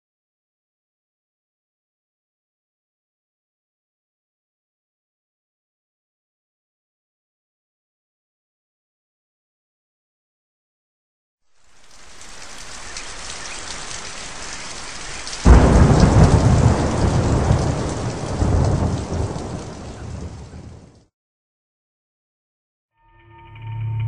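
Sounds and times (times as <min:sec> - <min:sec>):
steady rain: 0:11.5 - 0:21.1
thunderclap rumbling: 0:12.0 - 0:21.1.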